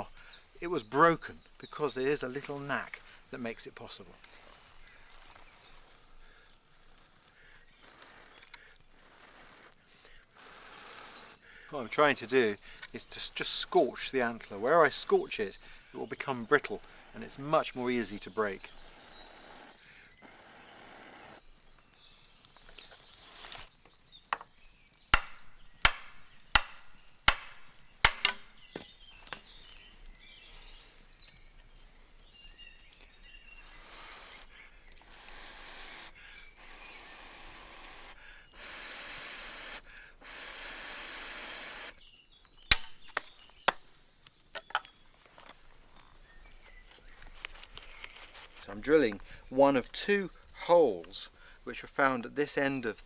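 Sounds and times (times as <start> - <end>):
flint tool scraping bone: 7.7 - 11.4, 22.8 - 23.7, 33.4 - 41.2
antler knocking and cracking: 24.3 - 29.6, 42.4 - 43.9.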